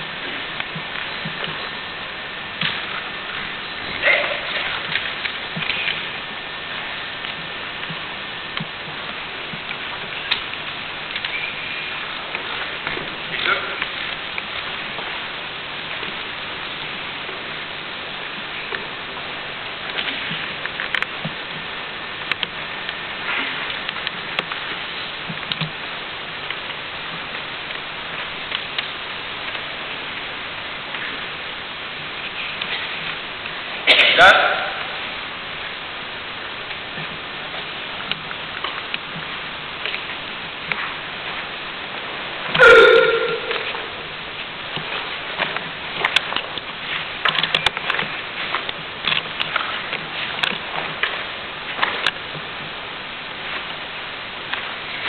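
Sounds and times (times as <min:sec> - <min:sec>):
camcorder hiss: 0:00.0 - 0:55.0.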